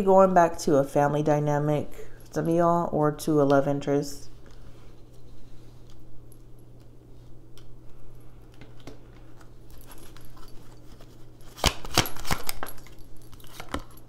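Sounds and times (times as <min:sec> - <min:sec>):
low steady hum: 0:00.0 - 0:14.0
cards snapping while shuffled: 0:11.4 - 0:14.0.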